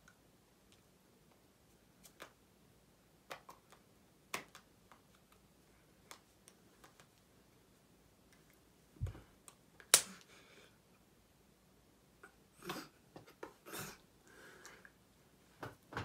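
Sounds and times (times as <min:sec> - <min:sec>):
hands tapping and clicking: 0:02.0 - 0:02.4, 0:03.2 - 0:05.4, 0:06.0 - 0:07.2.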